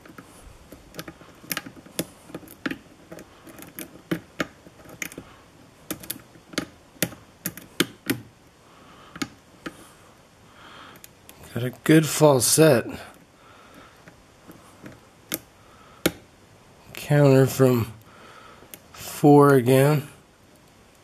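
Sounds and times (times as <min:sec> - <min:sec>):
lock pick clicking in lock: 0:00.0 - 0:05.2, 0:05.9 - 0:08.3.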